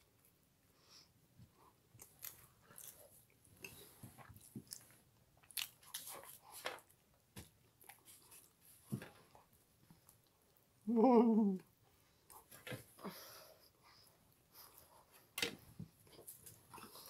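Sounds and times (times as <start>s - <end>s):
people chewing: 1.5s - 7.0s, 16.0s - 17.0s.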